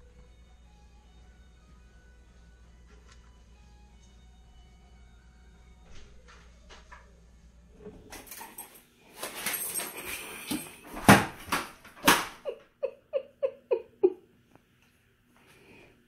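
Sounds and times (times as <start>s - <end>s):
scuffling and rattling: 7.8s - 12.4s.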